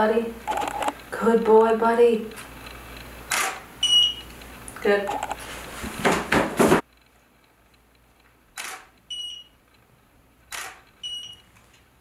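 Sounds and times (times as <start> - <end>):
camera shutter firing: 3.3 - 3.7, 8.6 - 8.9, 10.5 - 10.9.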